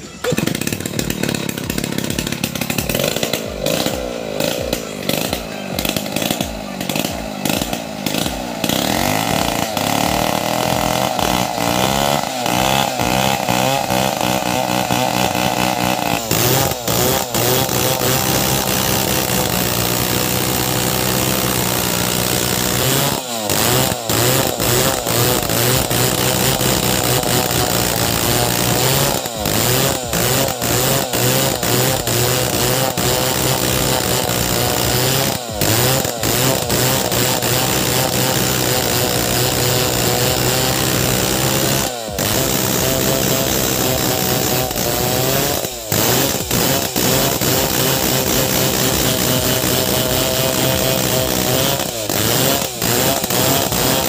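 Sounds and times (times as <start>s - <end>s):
chainsaw cutting log: 0.0s - 54.0s.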